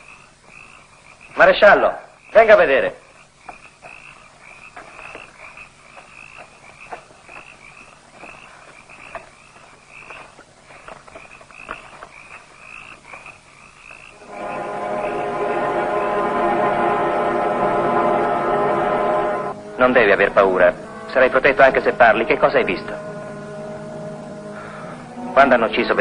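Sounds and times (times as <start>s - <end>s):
frogs croaking: 0.0s - 26.0s
music: 14.2s - 26.0s.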